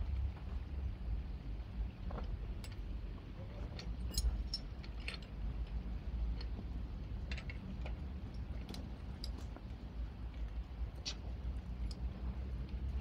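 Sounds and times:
metallic clicks and clinks: 3.7s - 9.6s.

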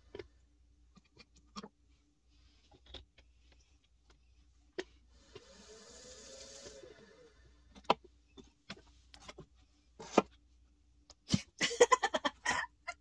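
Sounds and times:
pottery wheel whirring: 5.0s - 8.5s.

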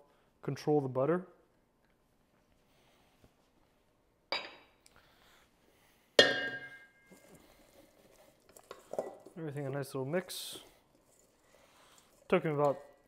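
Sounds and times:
wooden spoon scraping bowl: 7.1s - 13.0s.

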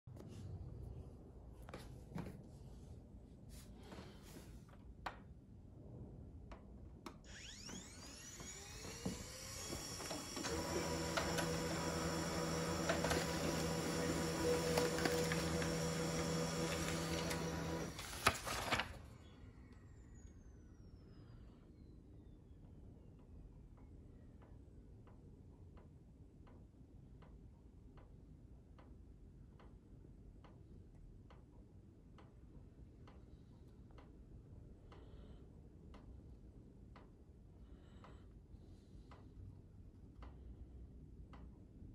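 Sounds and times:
printer motors whining: 7.3s - 18.8s
printer feed mechanism humming: 7.3s - 18.9s
printer clicks: 9.6s - 18.9s.

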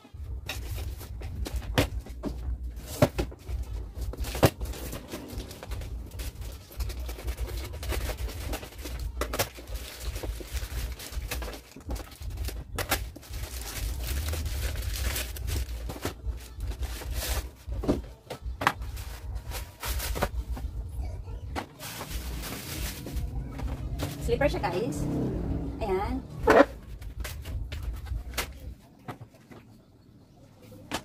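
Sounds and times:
paper wrapping rustling: 0.4s - 20.8s, 21.5s - 24.3s
scissors cutting plastic mailer: 4.1s - 17.5s.

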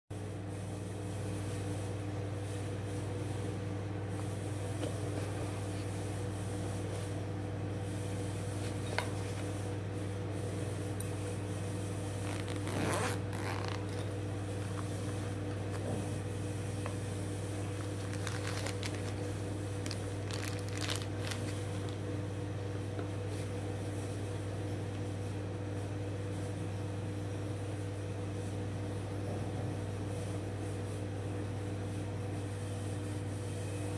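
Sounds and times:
steady low hum: 0.2s - 33.9s
zipper drawn open: 12.2s - 14.1s
packaging rustles: 12.2s - 15.9s, 17.6s - 22.0s.

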